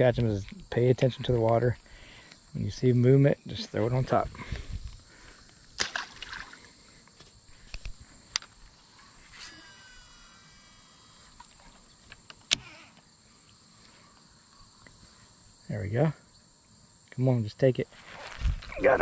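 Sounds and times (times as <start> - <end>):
high buzz of insects: 0.0 - 19.0
fishing reel clicking and whirring: 9.3 - 11.5.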